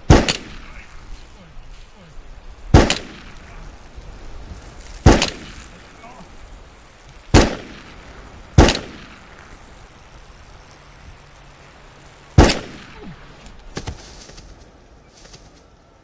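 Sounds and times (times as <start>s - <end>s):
loud gunshot: 0.1s - 0.9s, 2.7s - 3.4s, 5.0s - 5.6s, 7.3s - 7.9s, 8.6s - 9.2s, 12.4s - 12.9s
body falling on forest floor: 12.4s - 15.7s.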